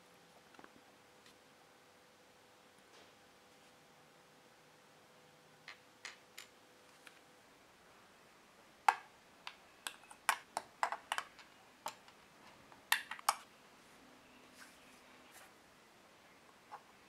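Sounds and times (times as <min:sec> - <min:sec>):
plastic parts clicking on a tabletop: 0:08.9 - 0:12.2, 0:12.8 - 0:13.4.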